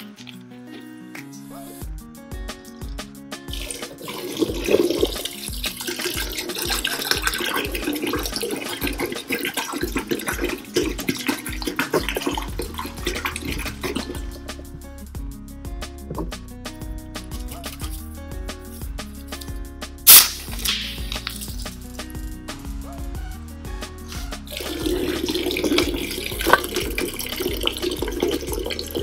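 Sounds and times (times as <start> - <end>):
background music with steady beat: 0.0 - 29.0
soda pouring and splashing: 3.5 - 14.6, 24.5 - 29.0.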